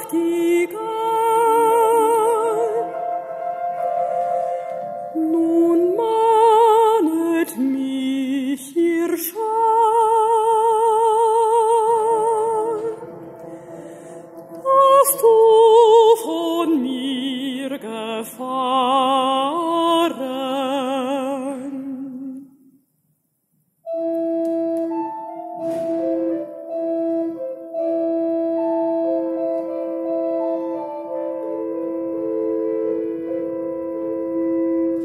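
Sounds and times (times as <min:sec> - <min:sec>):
woman singing with vibrato: 0:00.0 - 0:22.6.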